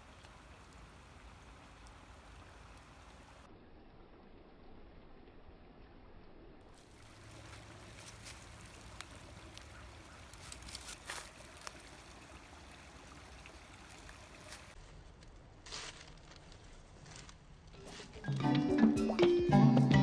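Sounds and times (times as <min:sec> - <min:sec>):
faint outdoor hiss: 0:00.0 - 0:19.7
small clicks and rustles: 0:06.7 - 0:11.9.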